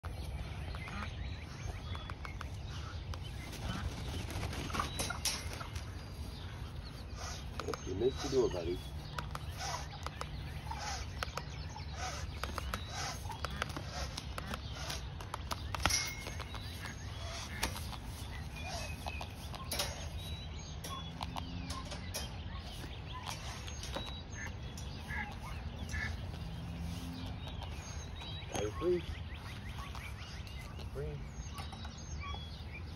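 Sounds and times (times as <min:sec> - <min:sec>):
small birds chirping: 0:00.0 - 0:32.9
steady low rumble: 0:00.0 - 0:32.9
wings flapping against wire fencing: 0:03.3 - 0:06.0
wire fence rattling: 0:03.5 - 0:06.0, 0:15.8 - 0:18.2, 0:19.4 - 0:24.0.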